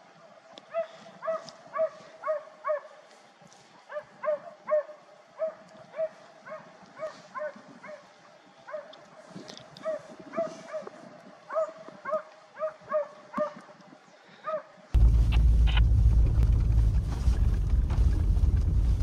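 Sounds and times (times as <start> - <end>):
dog baying and barking: 0.7 - 3.0, 3.9 - 8.1, 9.8 - 13.6.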